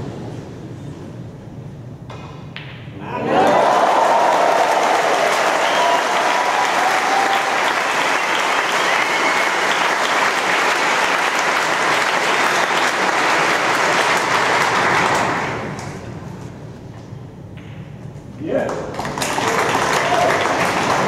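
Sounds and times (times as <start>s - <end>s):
large audience applauding: 3.3s - 16.0s, 18.9s - 21.0s.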